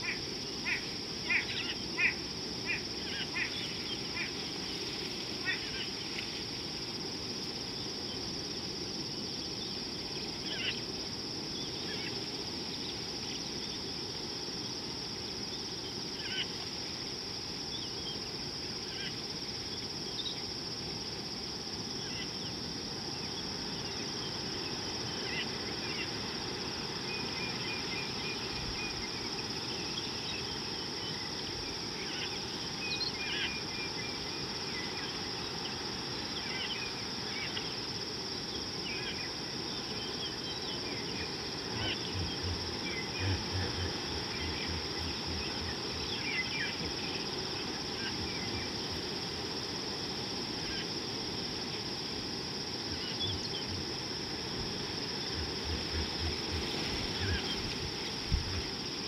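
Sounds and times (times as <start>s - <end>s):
high-pitched insect chorus: 0.0s - 59.0s.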